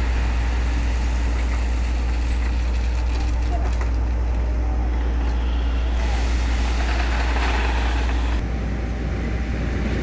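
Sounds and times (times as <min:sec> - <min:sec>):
diesel engine under load: 0:00.0 - 0:10.0
fluttering machine noise: 0:05.4 - 0:08.4.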